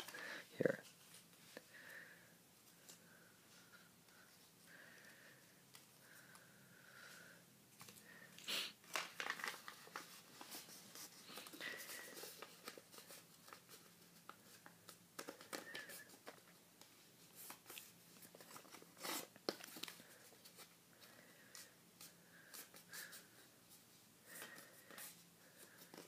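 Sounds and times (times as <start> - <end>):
paper rustling and crinkling: 8.8 - 20.8.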